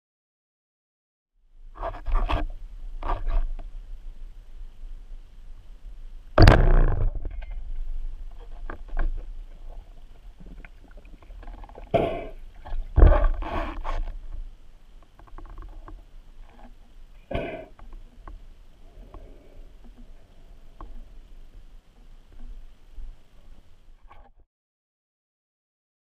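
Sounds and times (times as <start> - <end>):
speargun firing thump: 6.4 - 7.1
faint clicks: 15.0 - 24.3.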